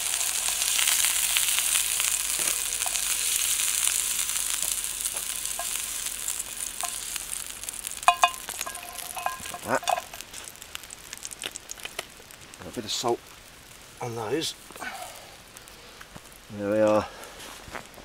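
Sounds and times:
scallops sizzling in frying pan: 0:00.0 - 0:17.0
light clinks: 0:08.1 - 0:10.2.

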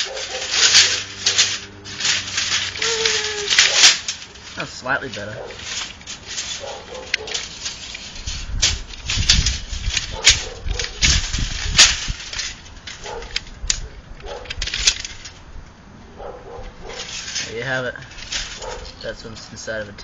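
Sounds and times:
tape measure clacking and rattling: 0:00.0 - 0:15.5, 0:16.5 - 0:19.8.

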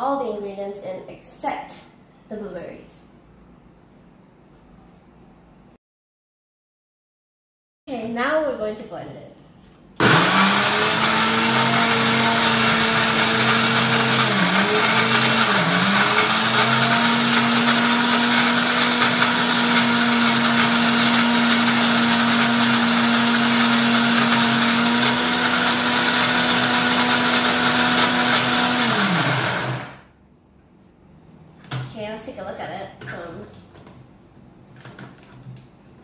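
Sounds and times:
blender motor running: 0:10.0 - 0:30.1.

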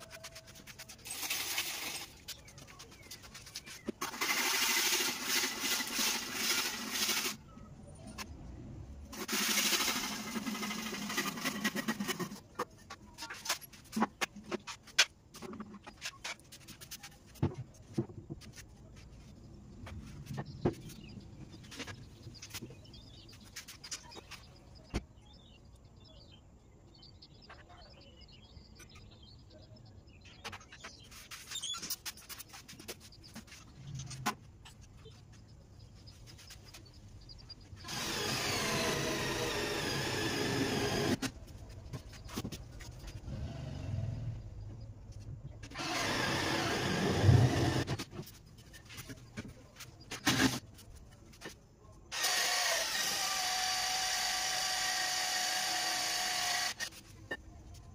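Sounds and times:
power drill whining: 0:37.9 - 0:41.2, 0:45.7 - 0:47.9, 0:52.1 - 0:56.9.

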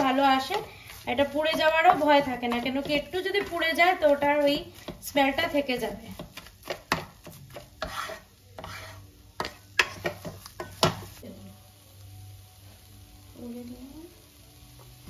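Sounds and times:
wooden spatula scraping a wok: 0:00.0 - 0:11.2.

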